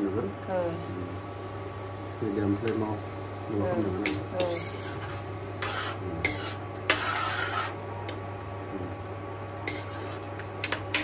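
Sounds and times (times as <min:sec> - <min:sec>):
utensil scraping a pot: 0:04.0 - 0:07.9, 0:09.6 - 0:11.0.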